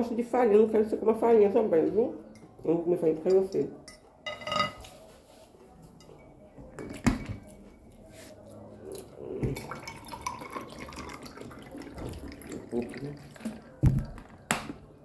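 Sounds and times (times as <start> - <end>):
fork clinking on glass plate: 3.3 - 4.9.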